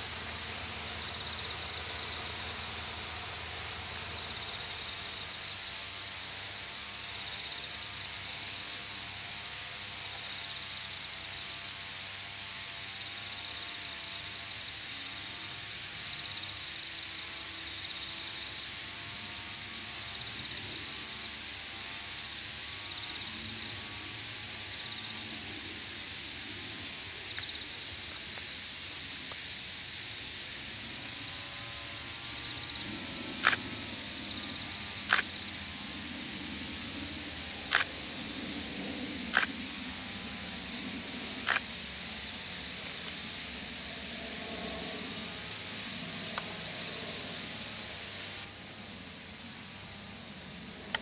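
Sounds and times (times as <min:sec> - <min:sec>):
high insect chorus: 0:00.0 - 0:51.0
sharp clicks: 0:33.4 - 0:33.7, 0:35.0 - 0:35.4, 0:37.7 - 0:38.0, 0:39.3 - 0:39.6, 0:41.4 - 0:41.7.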